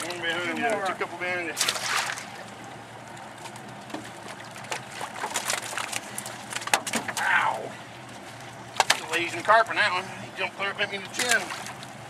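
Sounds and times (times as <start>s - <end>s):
fish splashing in water tank: 1.6s - 2.5s, 4.1s - 7.2s, 11.2s - 12.0s.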